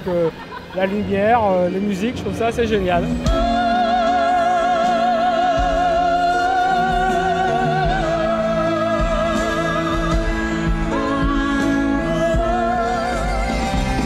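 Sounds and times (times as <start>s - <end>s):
orchestral accompaniment: 1.1s - 14.0s
operatic voice singing: 3.0s - 14.0s.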